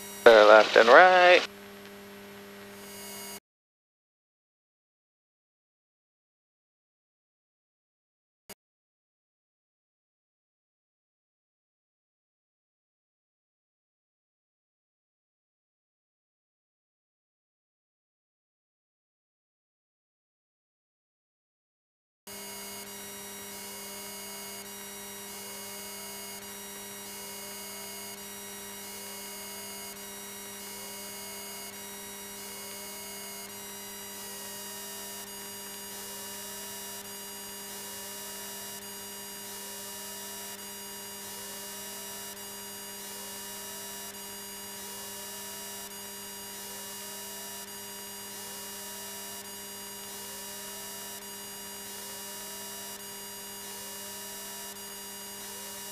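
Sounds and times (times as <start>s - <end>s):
intercom electrical hum and whine: 0.0s - 3.4s, 22.3s - 55.9s.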